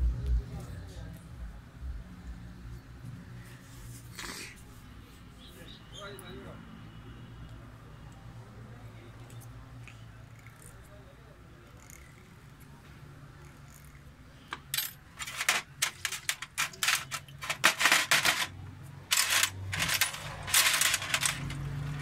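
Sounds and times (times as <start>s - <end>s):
metal parts clinking in tray: 14.5s - 22.0s.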